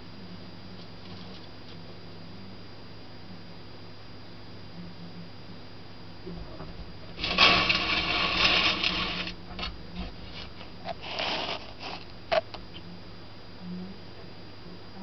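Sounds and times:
low hum: 0:04.8 - 0:14.8
scratching clatter on hard surface: 0:06.6 - 0:12.5.

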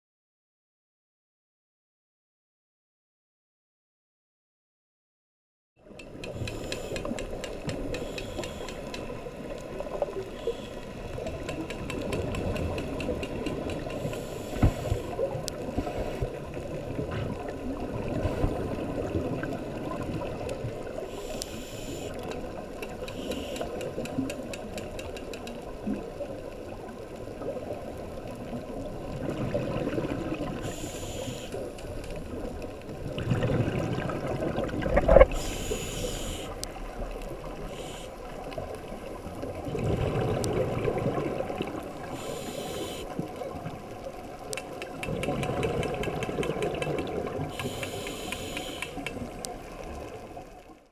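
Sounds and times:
muffled underwater water noise: 0:05.8 - 0:50.9
diving regulator hissing: 0:08.0 - 0:09.0, 0:14.0 - 0:15.2, 0:21.1 - 0:22.2, 0:23.1 - 0:23.8, 0:30.6 - 0:31.6, 0:35.3 - 0:36.6, 0:37.6 - 0:38.2, 0:42.0 - 0:43.1, 0:47.5 - 0:49.1
exhaled bubbles rumbling: 0:15.1 - 0:21.1, 0:27.4 - 0:30.7, 0:32.2 - 0:35.4, 0:38.6 - 0:42.1, 0:44.9 - 0:47.6.

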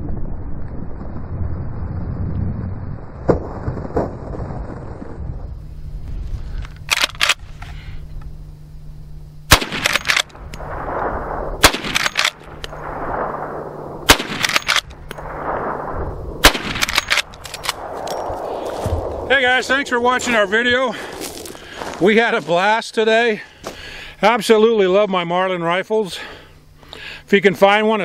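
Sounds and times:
rifle lever clicks: 0:06.6 - 0:07.7, 0:09.8 - 0:10.6, 0:11.8 - 0:12.8, 0:14.1 - 0:15.3, 0:16.5 - 0:18.2
rifle shots cracking: 0:06.9 - 0:07.5, 0:09.5 - 0:19.3
rolling echo: 0:09.5 - 0:21.8.

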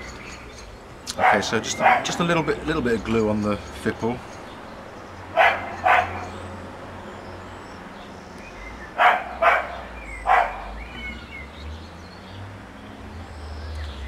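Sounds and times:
dog barking: 0:01.1 - 0:02.2, 0:05.4 - 0:06.4, 0:09.0 - 0:10.8.

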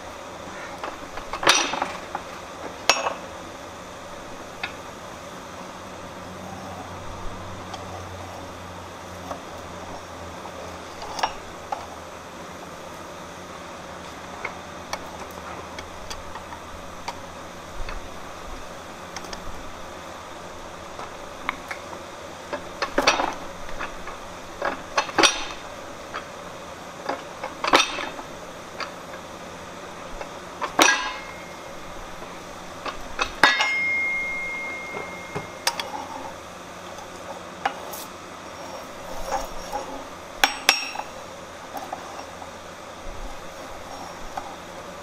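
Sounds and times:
fly press clanking on steel: 0:00.7 - 0:02.2, 0:22.5 - 0:26.3, 0:27.0 - 0:29.2, 0:30.2 - 0:36.2, 0:40.4 - 0:41.1
metallic ringing tone: 0:30.8 - 0:31.9, 0:33.4 - 0:36.4.

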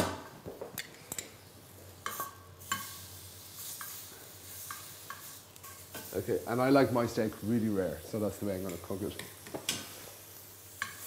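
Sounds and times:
steak sizzling in a pan: 0:01.9 - 0:11.0
metal tongs tapping a pan: 0:10.8 - 0:11.0.

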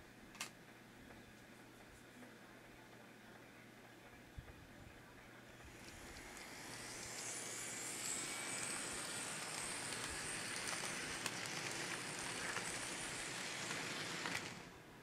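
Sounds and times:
model train wheels rolling: 0:05.6 - 0:15.0.

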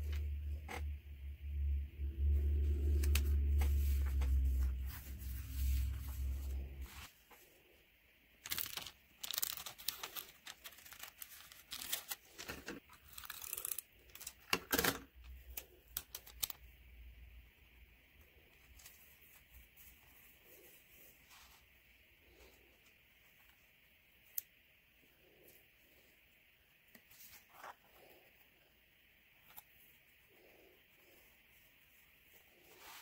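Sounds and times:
paper rustling: 0:02.6 - 0:07.4, 0:08.4 - 0:16.6.

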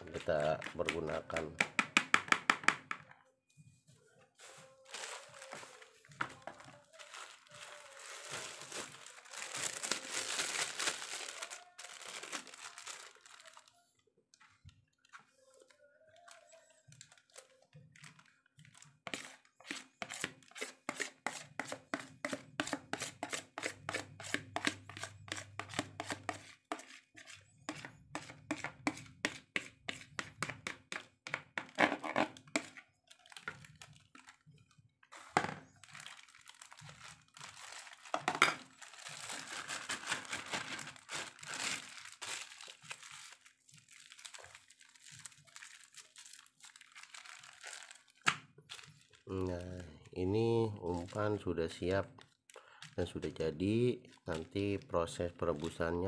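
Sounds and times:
plastic bag rustling: 0:04.0 - 0:14.0, 0:32.0 - 0:53.3
spoon scraping plastic bowl: 0:19.1 - 0:32.8.

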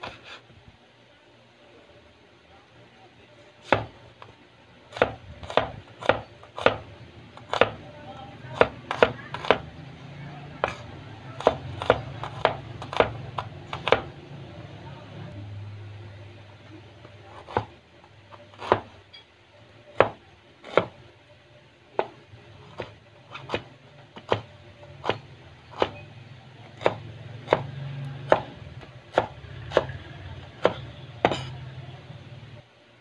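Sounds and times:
knife chopping on cutting board: 0:03.6 - 0:04.0, 0:04.9 - 0:07.8, 0:08.5 - 0:09.7, 0:10.6 - 0:14.2, 0:17.3 - 0:17.7, 0:18.5 - 0:19.0, 0:20.0 - 0:21.0, 0:22.0 - 0:26.0, 0:26.8 - 0:31.6.

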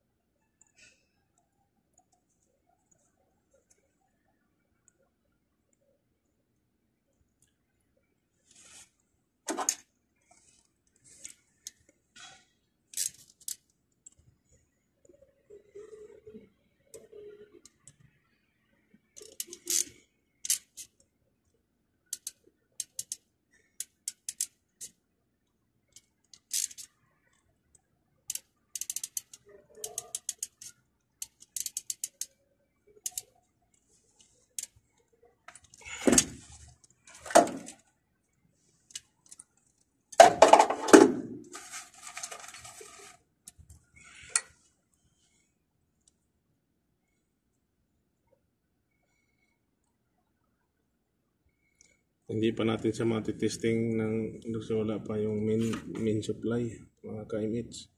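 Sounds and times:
gloved hands rustling wires: 0:08.4 - 0:14.4, 0:25.8 - 0:38.0, 0:38.6 - 0:40.2, 0:41.2 - 0:45.0
pliers clicking and snipping wire: 0:19.2 - 0:21.0, 0:22.1 - 0:23.2, 0:23.8 - 0:25.0, 0:25.9 - 0:26.9, 0:28.3 - 0:32.3, 0:33.0 - 0:33.3.

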